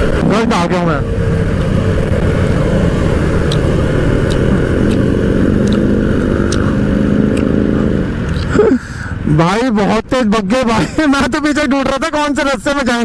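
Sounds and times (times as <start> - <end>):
motorcycle engine running: 0.0 - 8.1.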